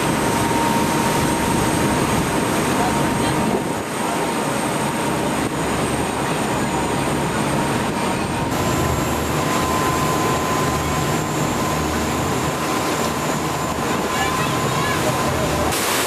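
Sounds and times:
ferry engine drone: 0:00.0 - 0:16.0
wind: 0:00.0 - 0:16.0
water spray rushing: 0:12.0 - 0:16.0.

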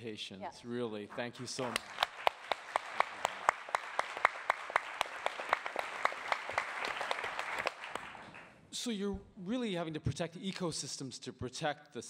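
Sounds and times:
audience applauding: 0:01.1 - 0:08.5
close sharp hand claps: 0:01.4 - 0:08.5.

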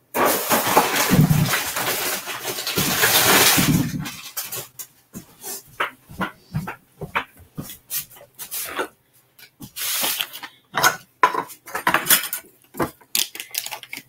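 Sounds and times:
cookware and utensils clattering: 0:00.0 - 0:04.8, 0:09.8 - 0:14.0.

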